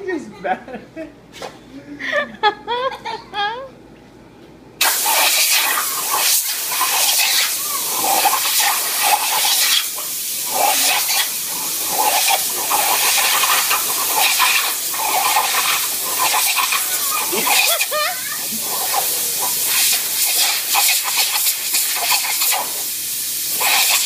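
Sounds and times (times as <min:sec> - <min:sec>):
compressed air hissing from hose: 0:04.8 - 0:24.0.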